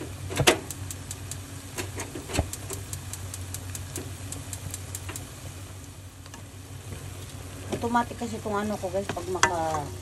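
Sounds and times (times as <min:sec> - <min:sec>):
kitchen exhaust fan hum: 0:00.0 - 0:10.0
noodles stirred in a pan: 0:06.5 - 0:10.0.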